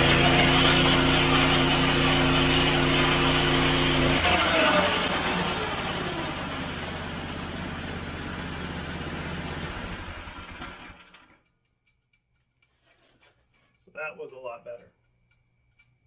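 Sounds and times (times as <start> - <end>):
small gas engine idling: 0.0 - 11.4.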